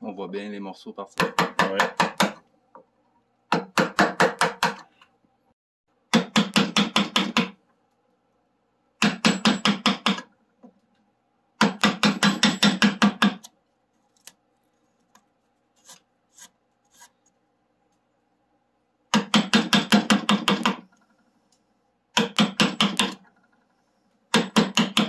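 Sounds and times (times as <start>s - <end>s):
hammer tapping carving gouge: 1.2s - 2.4s, 3.5s - 4.9s, 6.1s - 7.6s, 9.0s - 10.3s, 11.6s - 13.5s, 19.1s - 20.9s, 22.1s - 23.2s, 24.3s - 25.0s.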